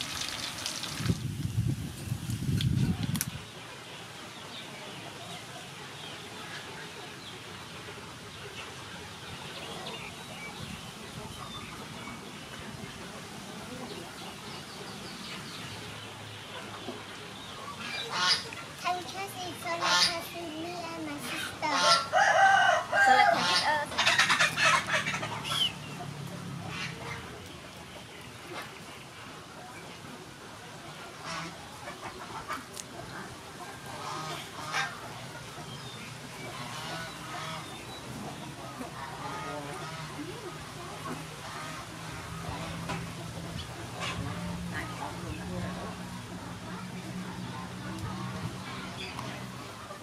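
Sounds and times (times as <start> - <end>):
birds chirping: 0.0 - 50.0
chickens clucking: 4.4 - 50.0.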